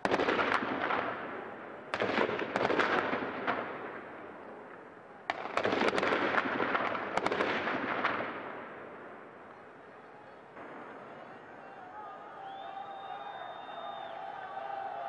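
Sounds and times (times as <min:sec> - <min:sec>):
rapid sharp cracks and bangs: 0:00.0 - 0:09.0
dense crackling din: 0:00.0 - 0:15.0.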